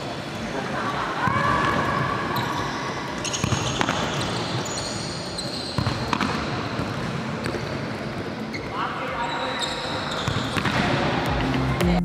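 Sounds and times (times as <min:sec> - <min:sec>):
shoe squeaks on court: 0:01.9 - 0:11.0
ball thudding on court floor: 0:10.3 - 0:11.0.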